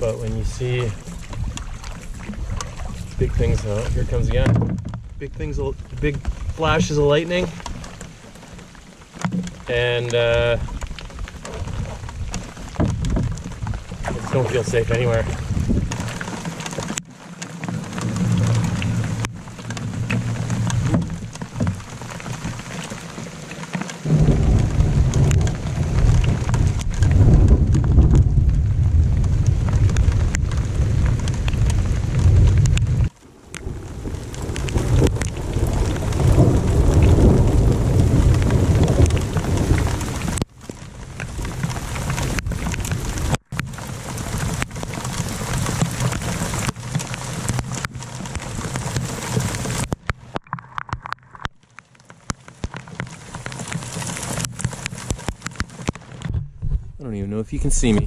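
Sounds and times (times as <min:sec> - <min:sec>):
heavy rain on lake: 0:00.0 - 0:58.0
rolling thunder: 0:24.0 - 0:40.4.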